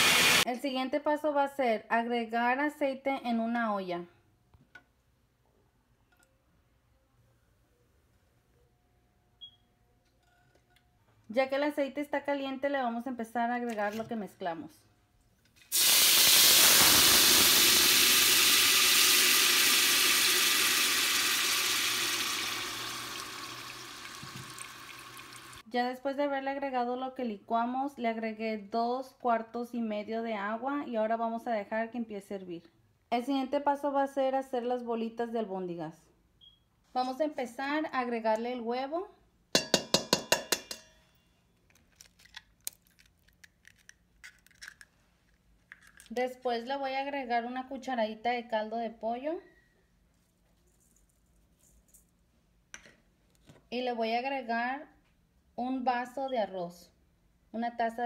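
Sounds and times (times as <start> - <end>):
eggshell crackling: 17.1 - 25.6, 41.7 - 45.0
egg knocking on metal bowl rim: 39.6 - 41.0.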